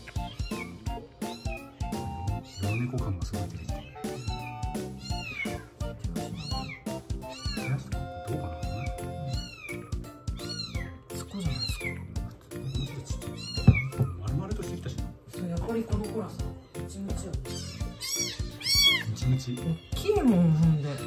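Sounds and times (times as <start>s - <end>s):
background music: 0.0s - 21.0s
kitten mewing: 0.1s - 14.2s, 17.4s - 19.1s.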